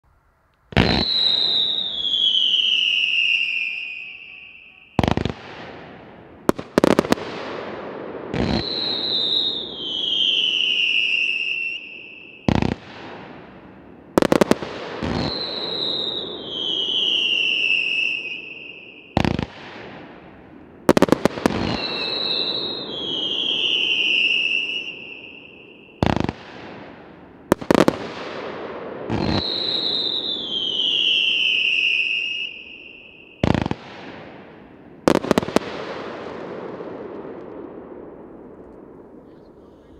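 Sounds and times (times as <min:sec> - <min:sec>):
firework bangs and bursts: 0:00.7 - 0:04.2, 0:04.9 - 0:39.6
firework whistles falling in pitch: 0:00.7 - 0:05.5, 0:08.3 - 0:12.8, 0:15.0 - 0:19.5, 0:21.0 - 0:26.4, 0:29.1 - 0:33.8.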